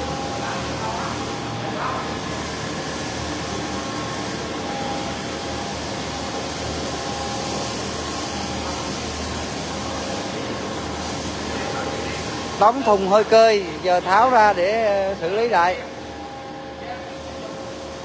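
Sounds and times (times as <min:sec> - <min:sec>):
machine hum and hiss: 0:00.0 - 0:18.0.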